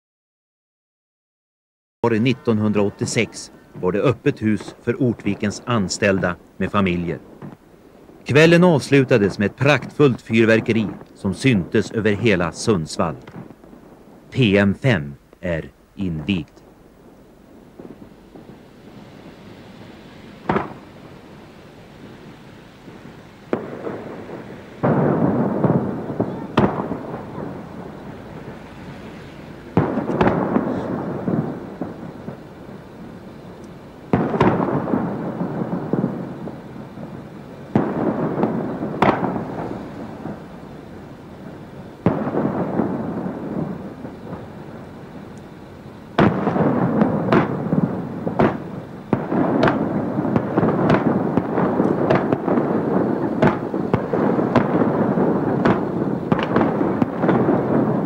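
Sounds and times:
fireworks bangs: 2.0 - 58.0
fireworks crackling: 2.0 - 58.0.

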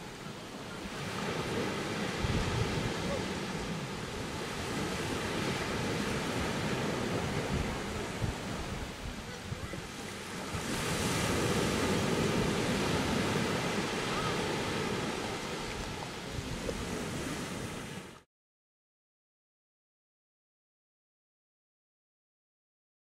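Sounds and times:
small waves breaking on beach: 0.0 - 18.3
wind buffeting microphone: 0.7 - 18.1.

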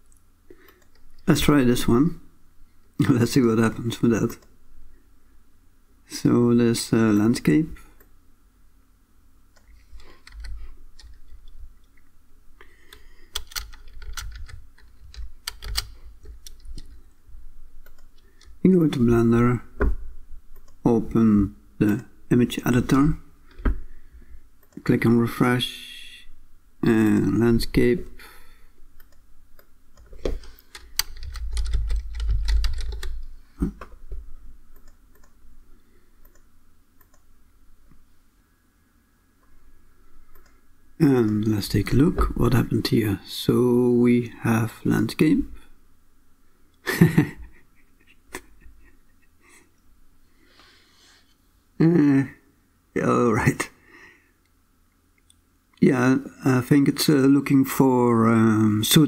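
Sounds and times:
typing on computer keyboard: 10.0 - 11.5, 13.3 - 17.0, 30.0 - 33.3.

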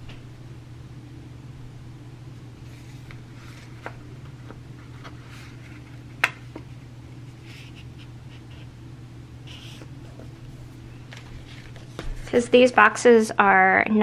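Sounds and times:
low hum: 0.0 - 13.5
paper rustling: 2.6 - 8.7, 9.5 - 12.4.

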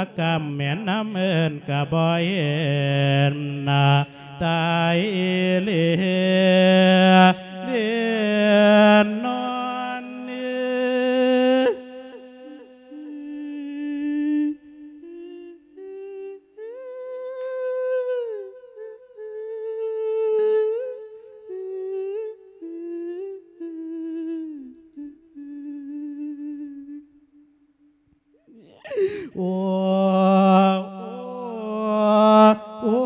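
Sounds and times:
monk chanting: 0.0 - 16.2, 28.5 - 33.0.

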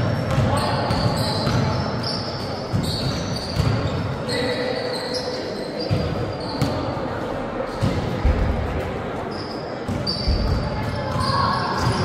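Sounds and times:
basketball bouncing: 0.0 - 1.7, 2.7 - 4.0
players' voices: 0.0 - 12.0
sneakers squeaking: 0.0 - 12.0.

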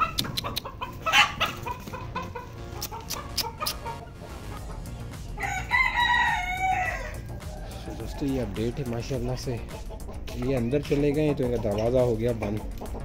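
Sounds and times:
chickens clucking: 0.0 - 13.0
rooster crowing: 5.4 - 8.5.

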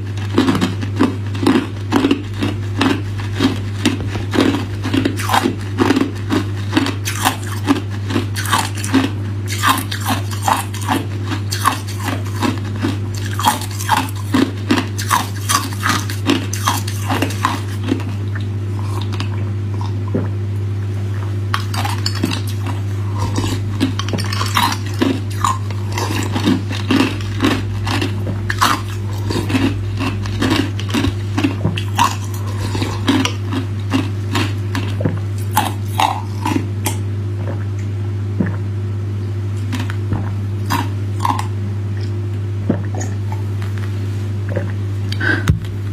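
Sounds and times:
steady low hum: 0.0 - 45.9
ice being crunched by teeth: 0.3 - 12.6.

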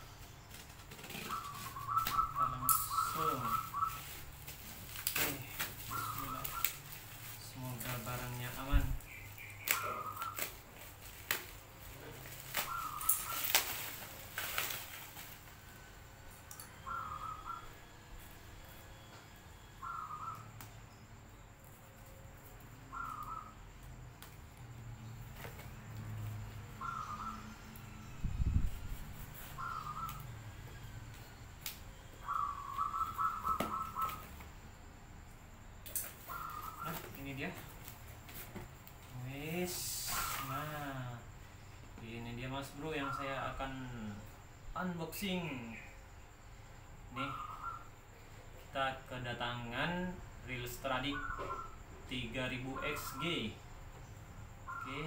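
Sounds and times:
bird harsh calls: 0.0 - 15.8, 16.6 - 21.5, 22.7 - 23.8, 26.6 - 34.7, 36.0 - 38.4, 39.3 - 48.6, 50.0 - 55.0
packing tape squealing: 0.4 - 15.8, 28.5 - 34.4, 35.8 - 41.0
plastic wrapping crinkling: 2.9 - 15.6
hands opening cardboard parcel: 3.2 - 8.5, 9.6 - 15.6.

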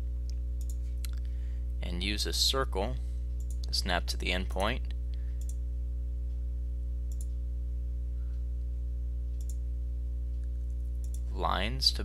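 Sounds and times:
low electrical hum: 0.0 - 12.0
computer mouse clicks: 0.6 - 0.8, 7.1 - 7.4, 9.4 - 9.6, 11.0 - 11.2.

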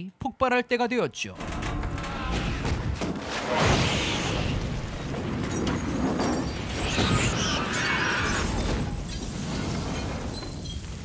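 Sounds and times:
explosion blast: 2.3 - 7.6.

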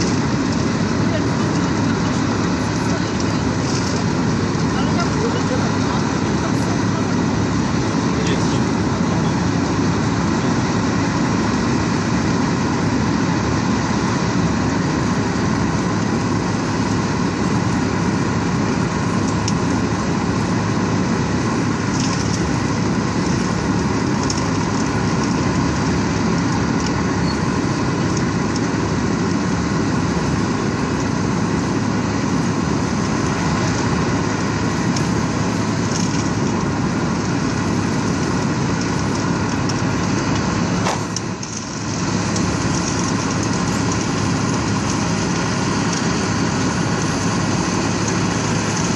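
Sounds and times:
faint crackles: 0.0 - 7.2, 14.9 - 48.9
asphalt pouring into truck: 0.0 - 48.9
truck engine running: 0.0 - 48.9.

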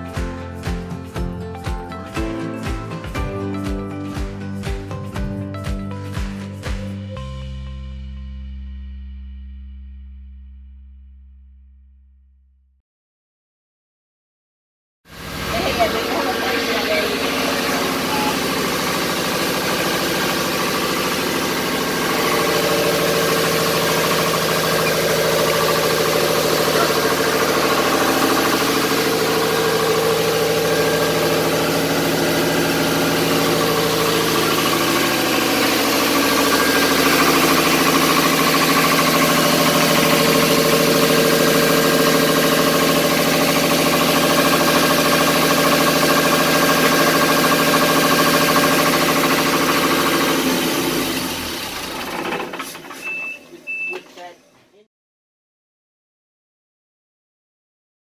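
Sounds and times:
boat diesel engine idling: 15.2 - 52.8.

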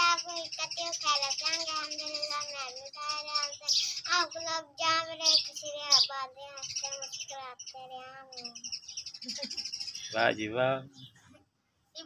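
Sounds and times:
child's high voice: 0.0 - 8.8
birds chirping: 0.0 - 12.0.

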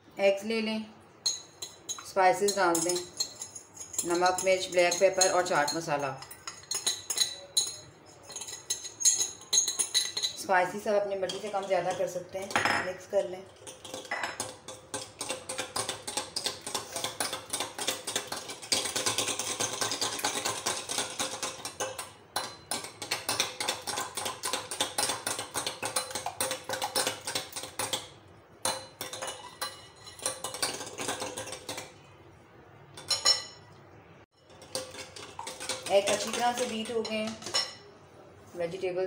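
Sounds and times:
metal whisk beating in glass bowl: 13.5 - 28.0, 34.5 - 37.8.

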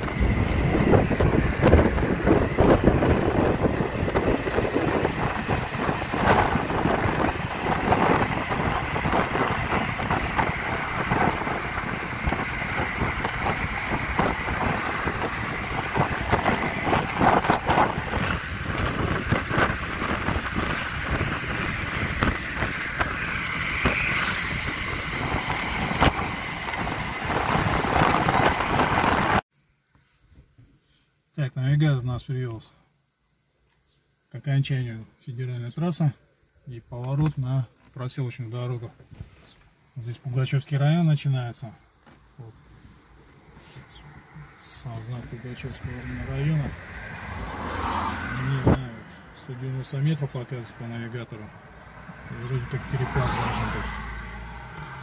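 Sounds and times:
wind buffeting microphone: 0.0 - 29.4, 45.2 - 49.3
road and wind noise in car: 0.0 - 29.5, 37.0 - 55.0.

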